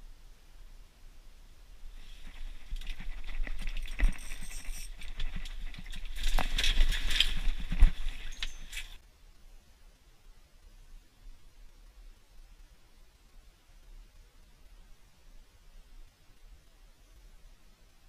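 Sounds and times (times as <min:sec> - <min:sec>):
clothing rustling: 0:01.9 - 0:09.0.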